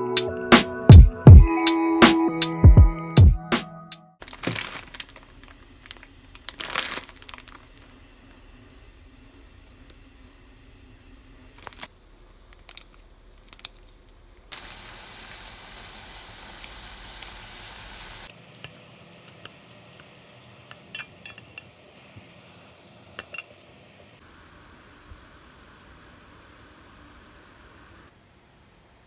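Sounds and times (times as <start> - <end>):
noodles sizzling in a pot: 4.2 - 13.6, 14.5 - 28.1.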